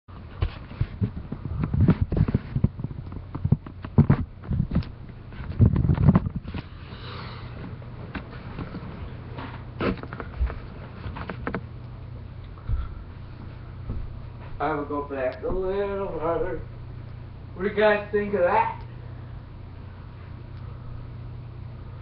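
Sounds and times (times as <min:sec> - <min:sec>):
recording device handling noise: 0:00.1 - 0:14.6
steady low hum: 0:00.1 - 0:22.0.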